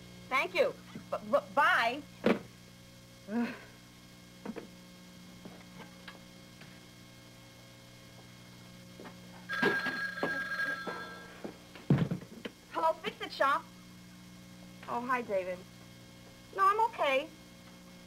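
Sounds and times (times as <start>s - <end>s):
telephone bell ringing: 9.5s - 11.4s.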